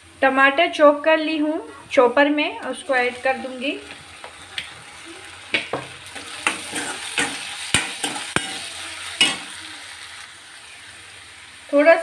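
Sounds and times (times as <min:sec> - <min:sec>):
onions sizzling in oil: 0:00.0 - 0:12.0
steel spoon scraping a pan: 0:06.2 - 0:09.6.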